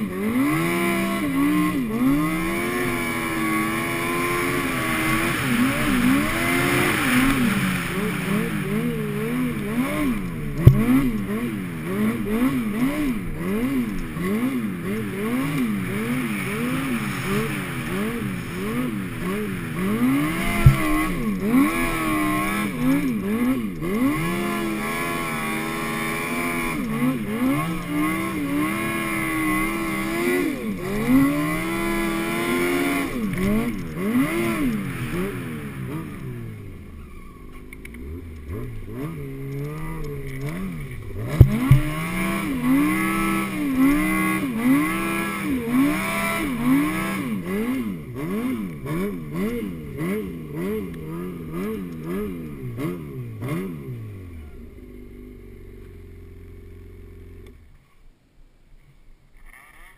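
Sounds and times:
snowmobile engine revving: 0.0 - 57.8
sharp knocks: 41.3 - 42.0.

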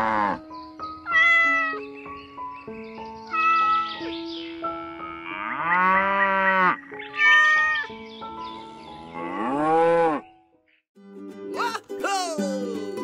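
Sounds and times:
cow mooing: 0.0 - 0.4, 4.9 - 7.7, 9.0 - 10.3
soft background music: 0.0 - 10.7
cat meowing: 1.1 - 1.8, 3.3 - 3.9, 7.2 - 7.9.

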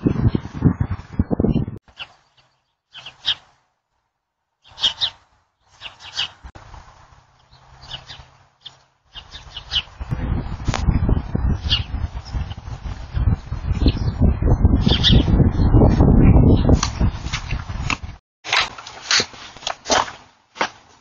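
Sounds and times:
small birds chirping: 0.0 - 3.6, 4.6 - 6.5, 7.3 - 10.1, 11.1 - 17.2.

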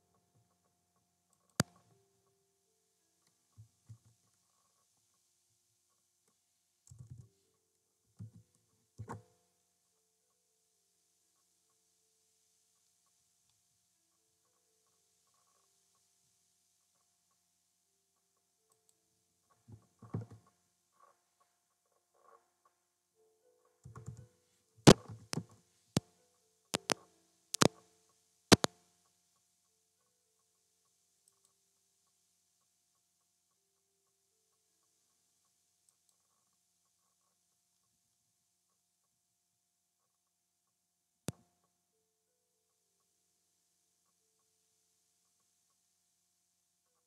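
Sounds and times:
low room hiss: 0.0 - 47.0
keyboard typing: 23.8 - 25.6, 26.8 - 27.8, 28.5 - 28.8
keyboard keystrokes: 26.8 - 27.0, 27.6 - 27.8, 28.5 - 28.7.

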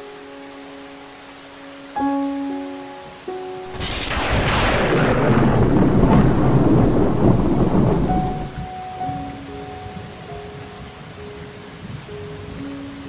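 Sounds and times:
heavy rain: 0.0 - 13.0
thunder rumbling: 3.6 - 13.0.

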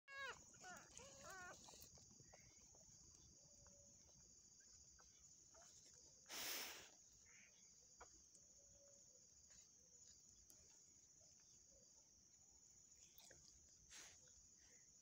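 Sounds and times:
insects chirring: 0.1 - 15.0.

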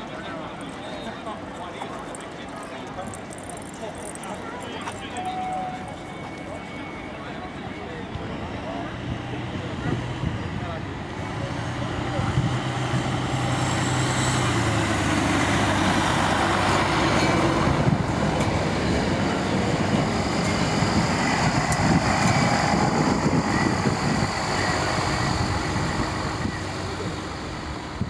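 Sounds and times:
train wheels on rails: 0.0 - 28.0
diesel engine running: 8.6 - 28.0.

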